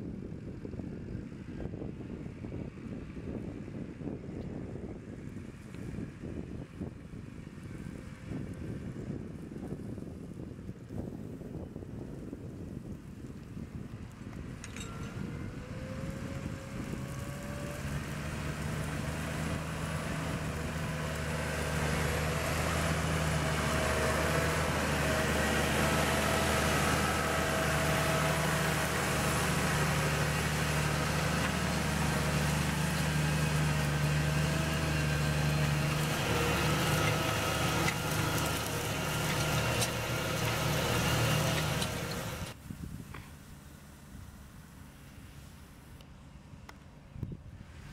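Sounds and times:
tractor diesel engine drone: 0:12.1 - 0:47.9.

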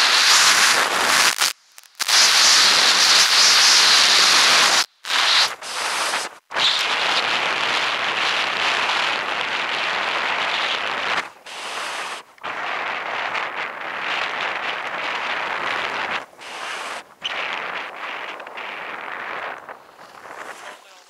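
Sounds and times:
wind rushing over microphone: 0:00.0 - 0:21.0
skis scraping over packed snow: 0:06.8 - 0:21.0.

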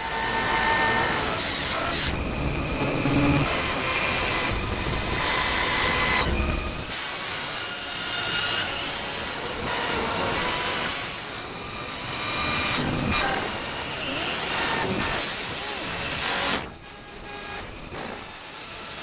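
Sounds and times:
mechanical drone: 0:00.0 - 0:19.0
high whining tones: 0:00.8 - 0:06.9.

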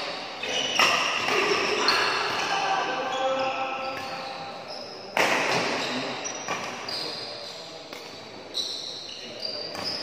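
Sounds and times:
shoes squeaking on court floor: 0:00.0 - 0:10.0
rackets hitting shuttlecock: 0:00.6 - 0:02.5, 0:05.1 - 0:06.9.

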